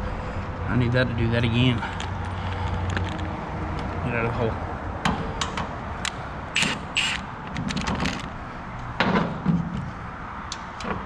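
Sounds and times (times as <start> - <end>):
metal scraping rasps: 6.6 - 8.2.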